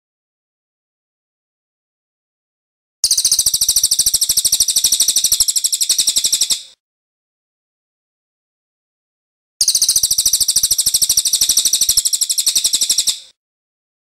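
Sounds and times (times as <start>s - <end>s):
songbird trilling: 3.0s - 6.8s, 9.6s - 13.3s.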